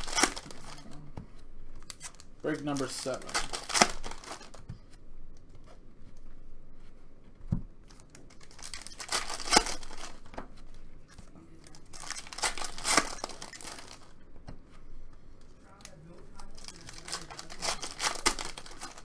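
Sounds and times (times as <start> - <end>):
foil wrappers tearing and crinkling: 0.0 - 0.9, 1.8 - 4.6, 8.3 - 10.2, 11.9 - 14.1, 16.5 - 19.0.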